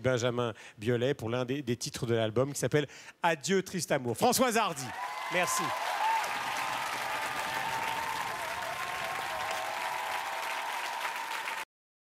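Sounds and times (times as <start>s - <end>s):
audience applauding: 4.8s - 11.7s.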